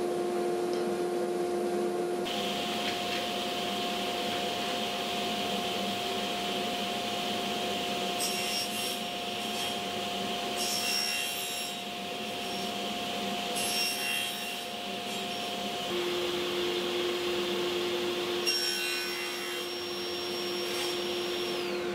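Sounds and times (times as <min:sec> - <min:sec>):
table saw running: 0:02.3 - 0:21.9
saw blade cutting wood: 0:08.0 - 0:15.6, 0:18.4 - 0:21.9.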